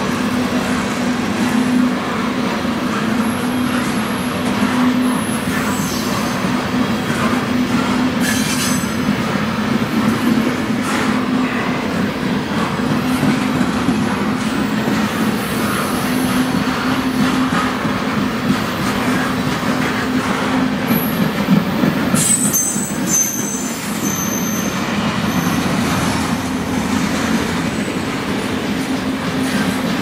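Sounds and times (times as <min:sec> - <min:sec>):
train wheels rumbling on rail: 0:00.0 - 0:30.0
high wheel squeals: 0:03.0 - 0:06.9, 0:07.9 - 0:12.0, 0:20.9 - 0:28.4.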